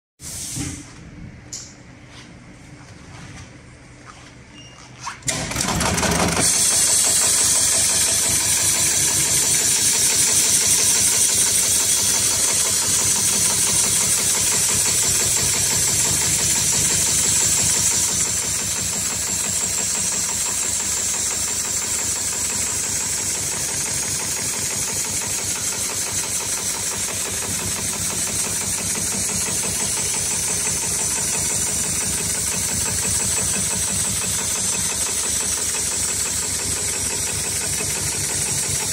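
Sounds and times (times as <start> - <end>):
sewing machine stitching: 5.2 - 38.9.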